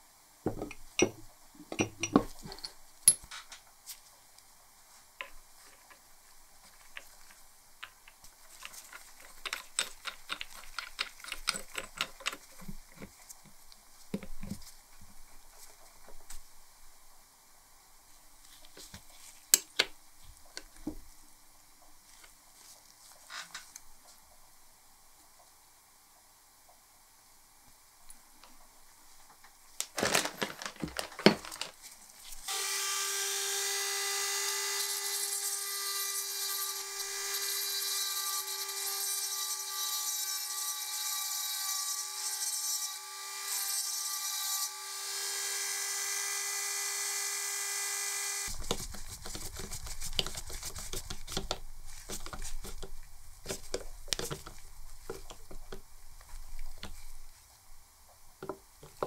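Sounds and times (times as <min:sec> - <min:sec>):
screwdriver scraping and clicking: 0:06.8 - 0:13.1, 0:48.5 - 0:52.9, 0:53.5 - 0:55.8
electric drill whining: 0:44.9 - 0:48.5.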